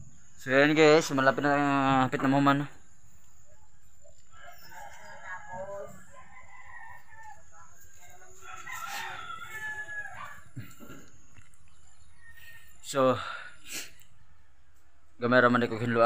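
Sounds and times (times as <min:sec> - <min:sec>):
faint rooster crowing: 0:03.4 - 0:11.2.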